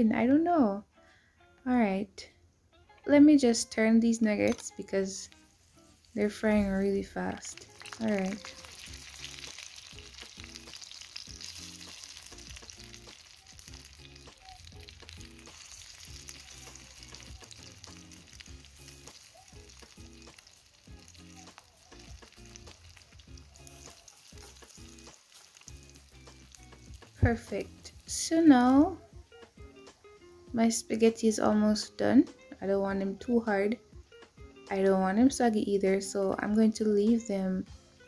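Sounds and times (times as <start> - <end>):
chicken frying in oil: 4.5 - 29.0.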